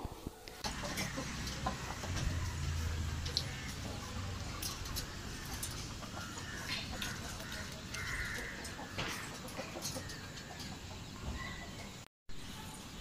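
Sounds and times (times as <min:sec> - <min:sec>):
chickens clucking: 0:00.0 - 0:12.6.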